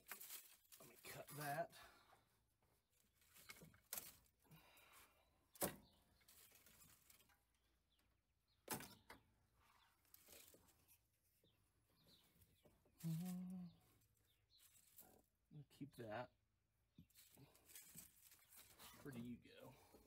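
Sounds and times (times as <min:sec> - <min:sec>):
faint rustling: 0:09.5 - 0:15.3, 0:17.0 - 0:20.0.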